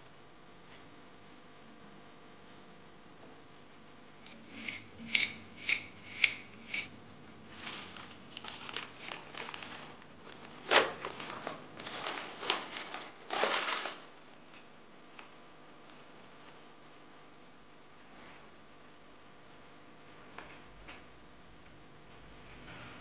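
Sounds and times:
fork scraping a porcelain bowl: 4.3 - 7.0
baking paper and pastry rustling: 7.5 - 14.2.

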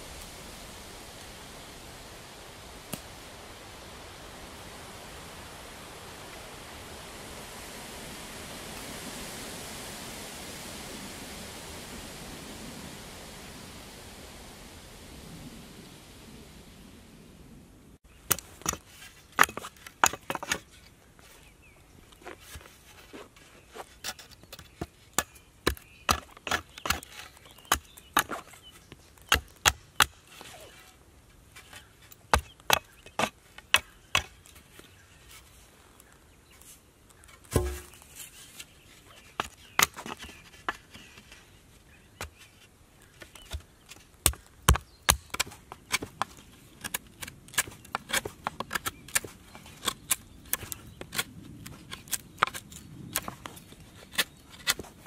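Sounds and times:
axe chopping wooden stick: 37.4 - 38.0.

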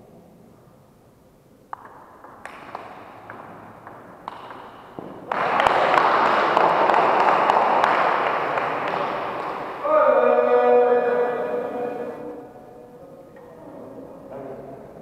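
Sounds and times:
spectators applauding and cheering: 5.3 - 11.3.

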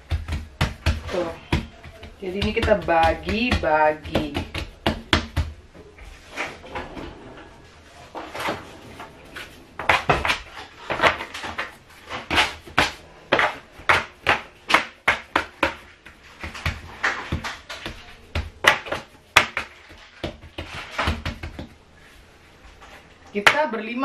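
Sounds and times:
dough scraper tapping countertop: 0.0 - 5.5.

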